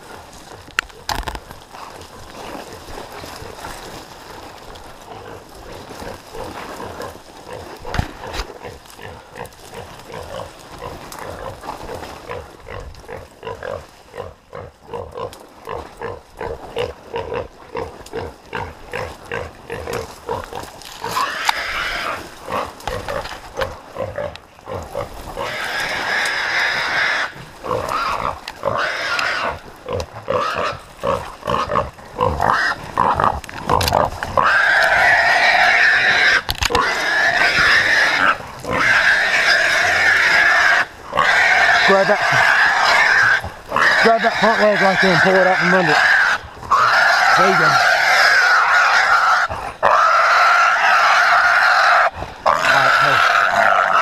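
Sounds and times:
running footsteps through brush: 0:00.0 - 0:49.3
hog squealing: 0:34.4 - 0:54.0.

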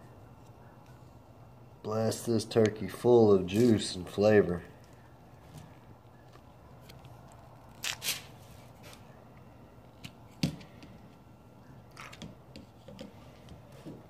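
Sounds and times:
foil rustling: 0:07.6 - 0:09.1.

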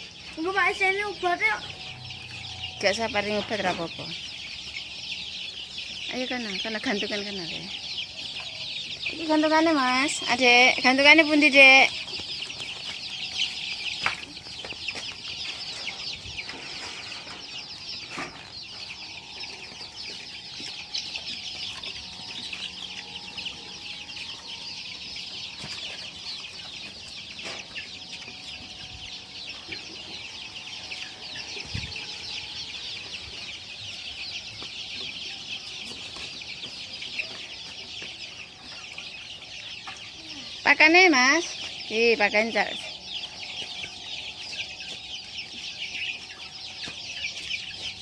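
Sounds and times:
young chickens chirping: 0:00.0 - 0:48.0.

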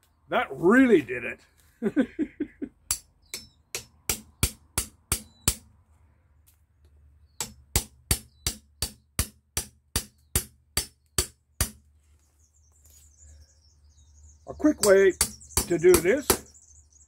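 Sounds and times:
hammer striking chisel: 0:02.9 - 0:05.7, 0:07.4 - 0:11.8, 0:14.8 - 0:16.5.

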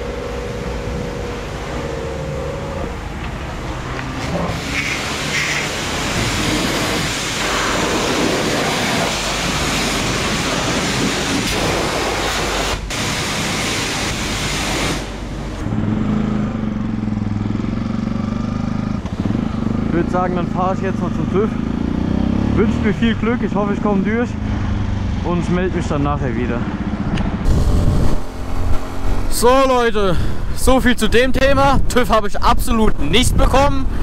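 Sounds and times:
pressure washer spraying water: 0:04.2 - 0:15.2
motorcycle engine pulling away: 0:15.6 - 0:23.1.

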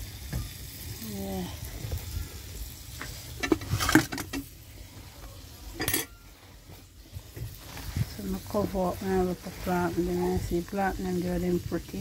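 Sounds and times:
dishes and utensils clinking: 0:03.4 - 0:04.4, 0:05.7 - 0:06.3.

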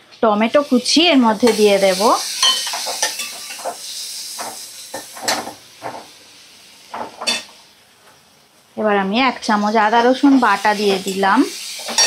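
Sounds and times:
food sizzling in oil: 0:00.3 - 0:12.0
spatula scraping and knocking pan: 0:02.4 - 0:06.2.

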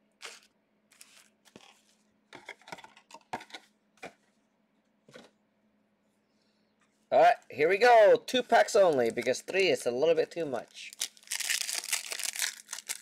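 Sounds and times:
pack wrappers rustling: 0:00.2 - 0:02.0, 0:10.6 - 0:13.0.

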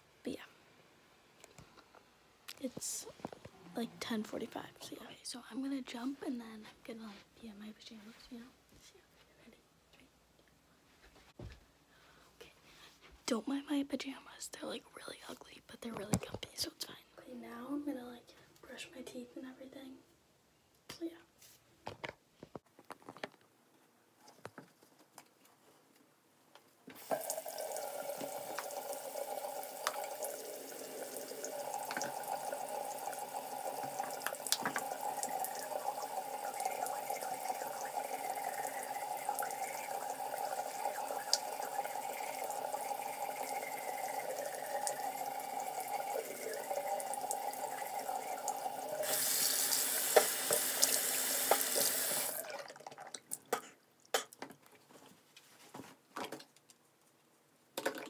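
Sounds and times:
sink tap running: 0:27.0 - 0:52.5.

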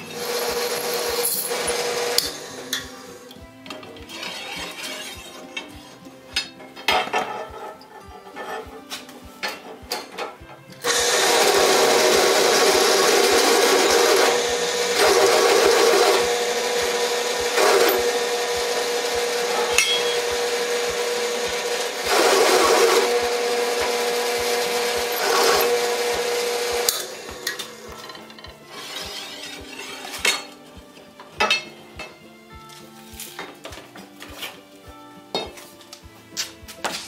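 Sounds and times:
drill press motor hum: 0:00.0 - 0:03.1, 0:10.8 - 0:30.2
drill bit cutting steel: 0:00.0 - 0:03.4, 0:04.1 - 0:05.6, 0:10.8 - 0:30.6.

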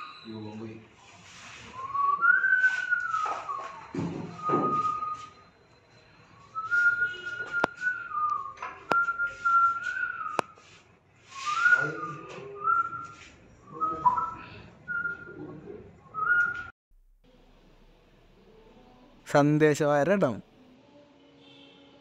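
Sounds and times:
person whistling a tune: 0:01.8 - 0:10.7, 0:11.3 - 0:15.5, 0:16.1 - 0:16.7.

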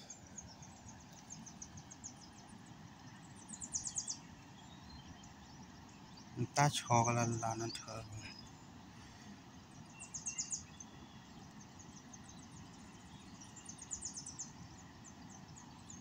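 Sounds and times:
birds chirping: 0:00.0 - 0:16.0
faint outdoor background: 0:00.0 - 0:16.0.

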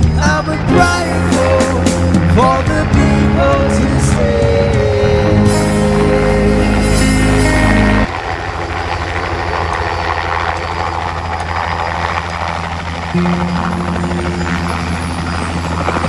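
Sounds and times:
background music: 0:00.0 - 0:08.1
helicopter flying low: 0:00.0 - 0:16.0.

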